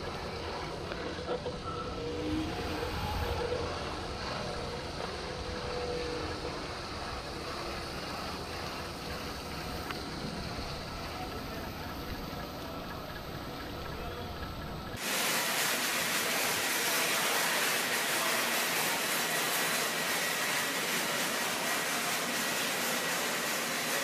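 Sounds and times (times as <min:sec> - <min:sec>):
steady hiss with high whistle: 0:01.6 - 0:24.0
water spraying: 0:15.0 - 0:24.0.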